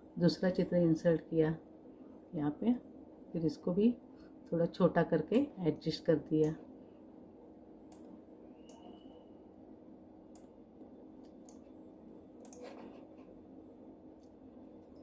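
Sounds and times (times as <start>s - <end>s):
low steady hum: 0.0s - 15.0s
computer mouse clicks: 10.3s - 10.5s, 11.2s - 11.7s, 12.4s - 13.3s.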